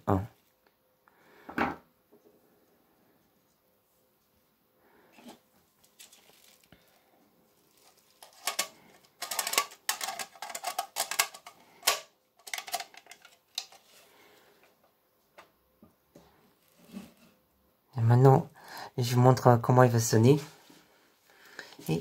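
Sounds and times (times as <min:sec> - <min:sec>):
plastic housing clicking and rattling: 0:08.2 - 0:13.9.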